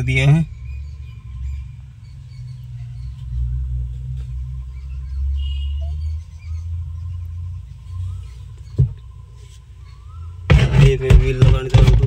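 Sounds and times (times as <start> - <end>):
faint bird chirps: 0.0 - 10.5
low rumble on microphone: 6.0 - 12.0.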